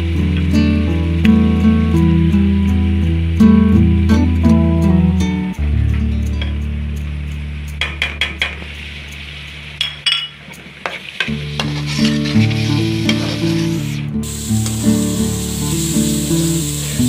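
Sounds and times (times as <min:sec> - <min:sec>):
oil sizzling: 0:00.0 - 0:05.8, 0:06.4 - 0:17.0
background music: 0:00.0 - 0:09.8
metal spoon scraping metal pan: 0:11.2 - 0:14.0.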